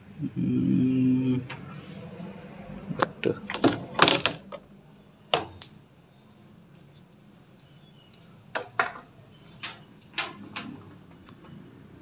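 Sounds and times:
plastic knocks and clatter: 3.5s - 4.6s, 5.3s - 5.7s, 8.5s - 11.6s.

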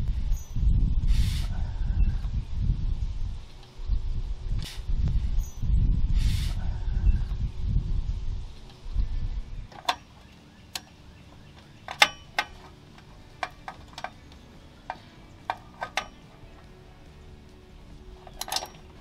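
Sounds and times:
ratchet wrench metallic clicks: 11.8s - 16.6s, 18.2s - 19.0s.

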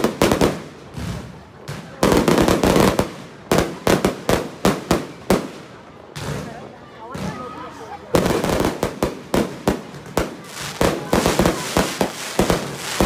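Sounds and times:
firework shells crackling: 8.3s - 13.0s.

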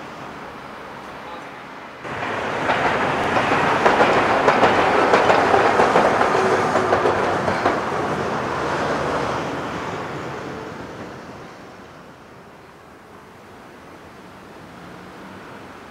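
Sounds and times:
tram wheels clicking over rails: 2.0s - 11.6s.

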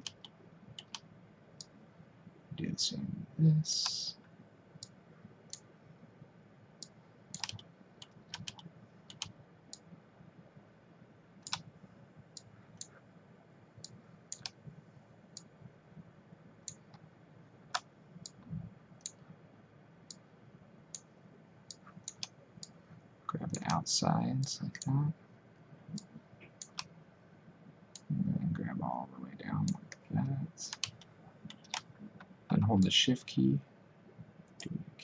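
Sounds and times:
mouse and keyboard clicks: 0.0s - 1.0s, 7.4s - 9.3s, 11.4s - 11.6s
low steady hum: 0.0s - 35.0s.

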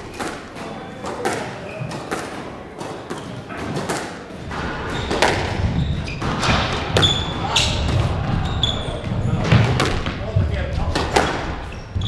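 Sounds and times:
squash ball knocks: 0.0s - 8.4s, 9.0s - 11.7s.

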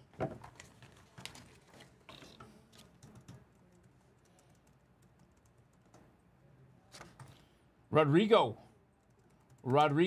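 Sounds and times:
faint computer keyboard typing: 2.1s - 6.3s, 8.9s - 10.0s.

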